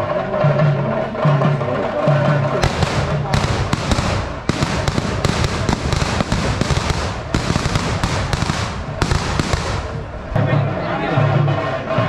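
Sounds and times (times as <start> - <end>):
firecrackers cracking: 2.6 - 10.4.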